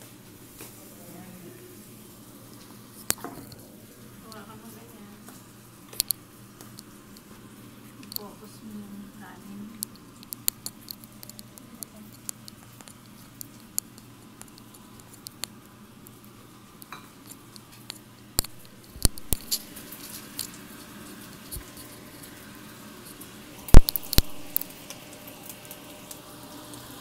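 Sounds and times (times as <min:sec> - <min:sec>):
rice stirred in a steel pan: 0:16.8 - 0:23.2.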